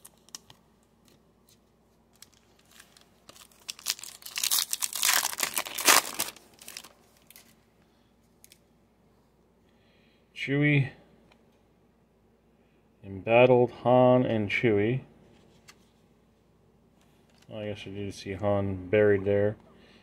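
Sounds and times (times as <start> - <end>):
wrapper tearing and crinkling: 2.1 - 7.6.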